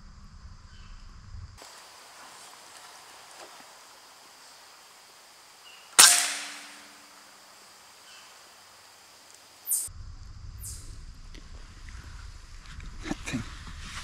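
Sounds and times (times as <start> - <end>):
rifle shot echoing: 6.0 - 7.4.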